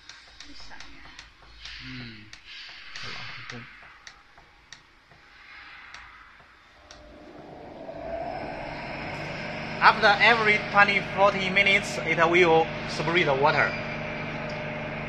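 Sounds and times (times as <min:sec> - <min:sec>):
wash of noise: 0:05.3 - 0:14.9.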